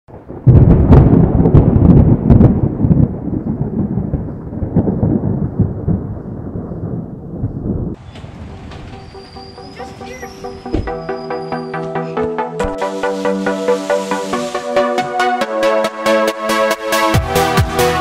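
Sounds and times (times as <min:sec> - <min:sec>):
thunder crack and rumble: 0:00.1 - 0:10.2.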